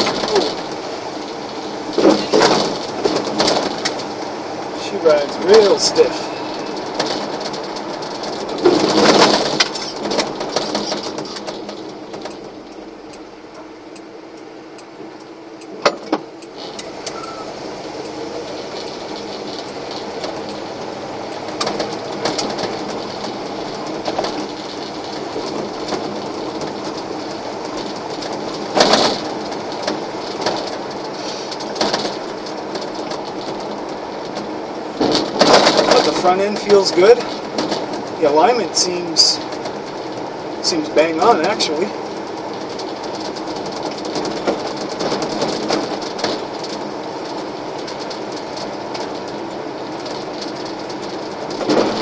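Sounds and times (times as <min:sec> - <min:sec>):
engine and road drone: 0:00.0 - 0:52.0
cab fittings knocking and rattling: 0:06.7 - 0:14.0, 0:18.8 - 0:38.6, 0:41.1 - 0:52.0.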